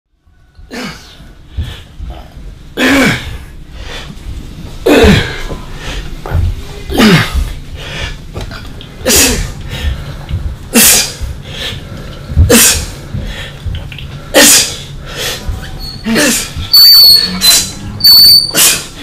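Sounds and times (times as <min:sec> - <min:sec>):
man grunting: 0:16.0 - 0:16.6.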